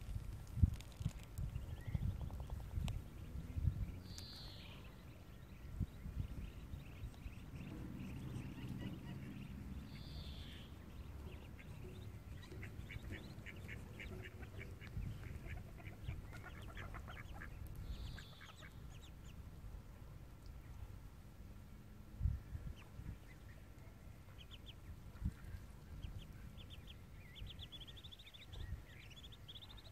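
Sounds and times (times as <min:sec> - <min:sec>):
steady low rumble: 0:00.0 - 0:29.6
ducks calling: 0:07.6 - 0:19.1.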